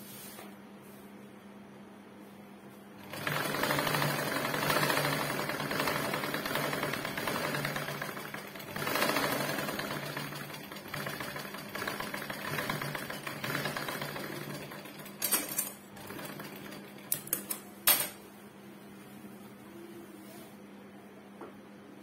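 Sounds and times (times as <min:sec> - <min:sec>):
sewing machine stitching: 0:03.0 - 0:17.6.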